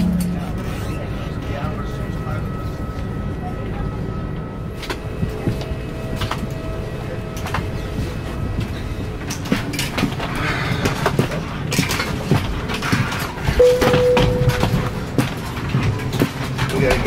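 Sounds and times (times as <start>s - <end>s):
aircraft cabin rumble: 0.0s - 17.0s
knocks and clicks of movement: 11.0s - 16.7s
steady single tone: 13.6s - 15.4s.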